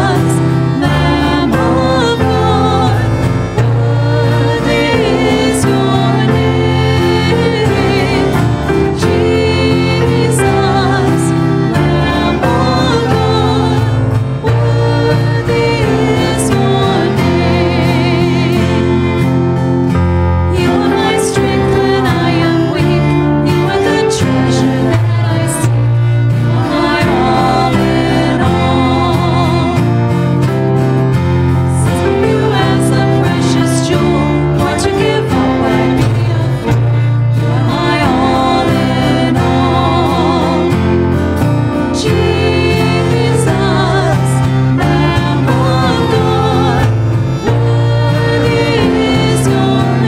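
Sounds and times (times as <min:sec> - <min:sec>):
women singing worship song: 0:00.0 - 0:19.5, 0:20.4 - 0:30.2, 0:31.7 - 0:50.0
low bass line: 0:00.0 - 0:23.6
violins sustained notes: 0:00.0 - 0:30.7, 0:31.6 - 0:50.0.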